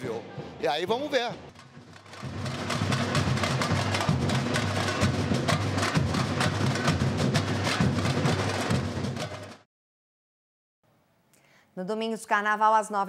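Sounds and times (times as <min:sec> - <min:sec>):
samba drum band playing: 0:00.0 - 0:09.6.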